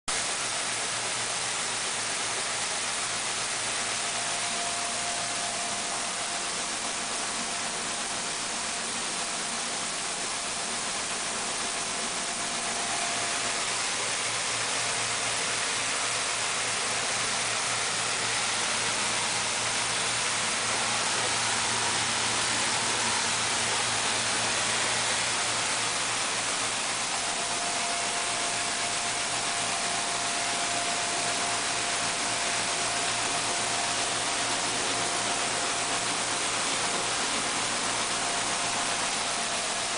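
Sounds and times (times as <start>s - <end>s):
milling machine whirring: 0.1s - 39.9s.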